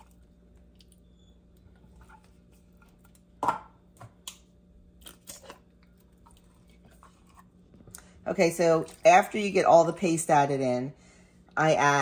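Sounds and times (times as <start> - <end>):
cans knocking and clinking: 3.4 - 4.1.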